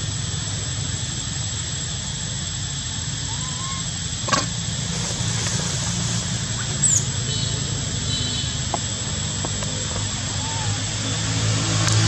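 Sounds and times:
high falling squeak: 3.3s - 3.9s.

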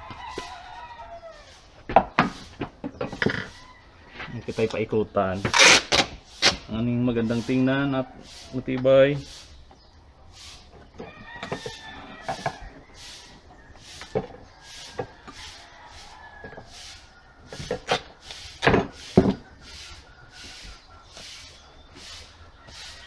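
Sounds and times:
duct tape and cardboard handling: 5.4s - 6.7s.

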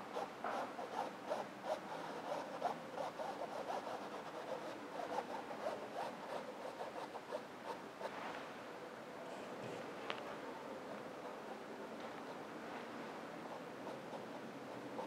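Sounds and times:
paintbrush scratching on canvas: 0.2s - 8.2s, 11.2s - 15.0s.

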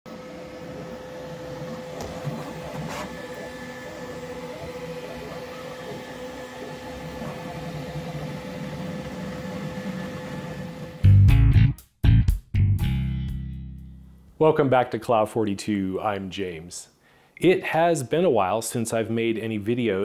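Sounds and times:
print head whirring: 0.1s - 11.1s.

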